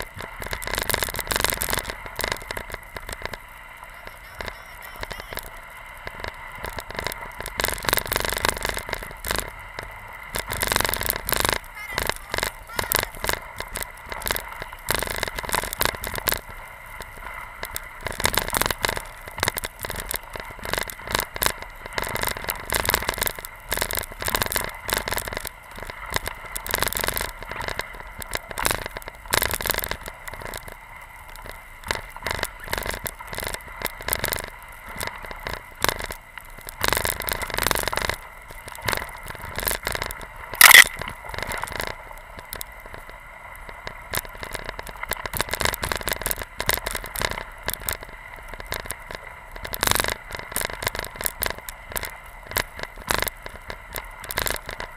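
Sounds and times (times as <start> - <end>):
snow spray hitting camera: 40.6 - 41.0.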